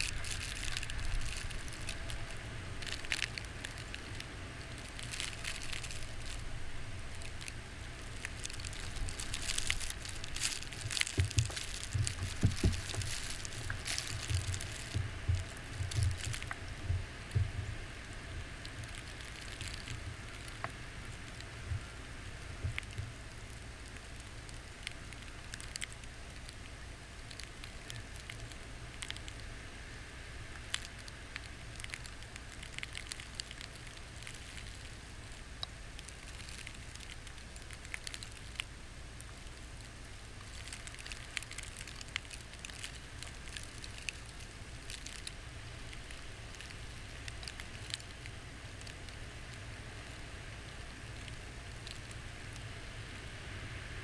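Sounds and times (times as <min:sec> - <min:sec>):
snow ticking against camera: 0:00.0 - 0:17.8.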